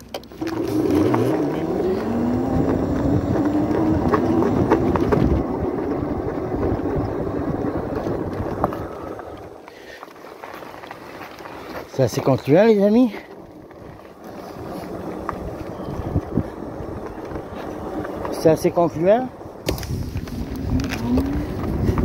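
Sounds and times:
tyre noise: 0.0s - 22.0s
electric motor whining: 0.3s - 9.2s
wind noise: 0.3s - 9.6s, 13.5s - 18.8s, 19.4s - 22.0s.

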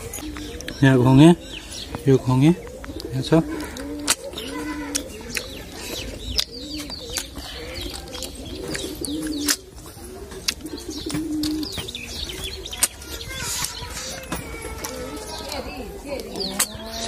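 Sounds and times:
pigeons cooing: 0.0s - 17.0s
small birds chirping: 0.0s - 17.0s
mouth clicks and smacks: 2.7s - 9.7s, 10.4s - 15.0s.

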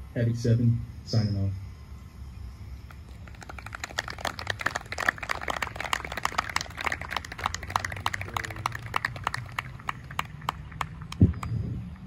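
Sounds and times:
audience applause: 3.1s - 11.2s.

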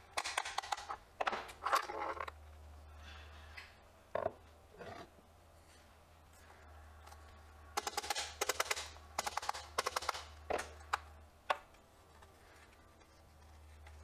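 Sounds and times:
sharp clicks of tool parts: 0.1s - 2.3s, 7.8s - 11.7s.

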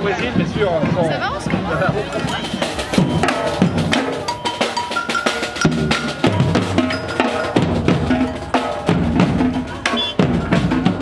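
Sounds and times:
percussion music: 0.0s - 11.0s
cowbell: 2.1s - 10.6s.

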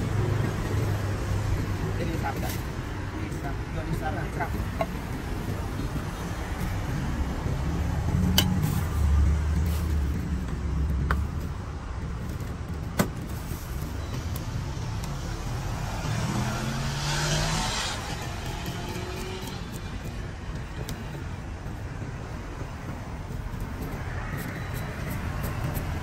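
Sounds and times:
vehicle engine hum: 0.0s - 26.0s
vehicle passing with hiss: 14.7s - 20.0s.

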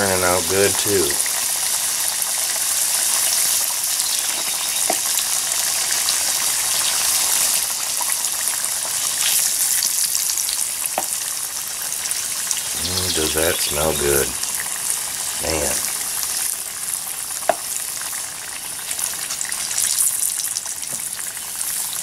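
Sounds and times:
food sizzling in a skillet: 0.0s - 22.0s.

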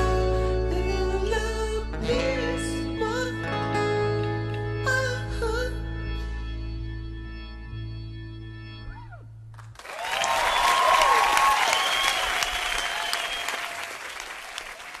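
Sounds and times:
audience applause and cheering: 9.7s - 15.0s.

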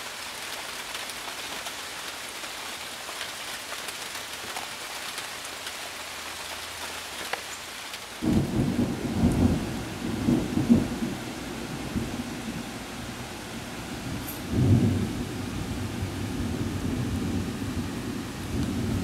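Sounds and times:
rain hissing: 0.0s - 19.0s
thunder rumbling: 8.2s - 19.0s.

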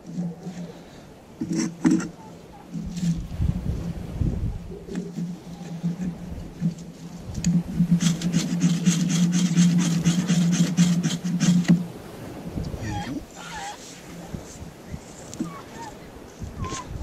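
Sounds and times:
knife scraping bark: 0.0s - 3.3s, 4.9s - 11.8s.

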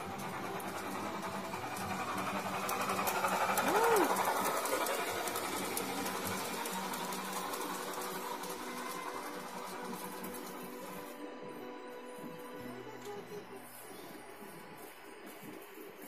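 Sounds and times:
rapid clicking: 0.0s - 11.1s
model train motor whirring: 0.0s - 11.3s.

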